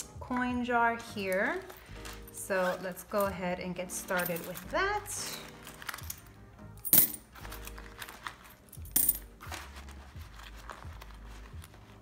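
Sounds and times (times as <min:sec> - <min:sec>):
coins jingling: 0:03.9 - 0:09.9
coins clinking into glass jar: 0:04.0 - 0:06.2, 0:06.8 - 0:09.5.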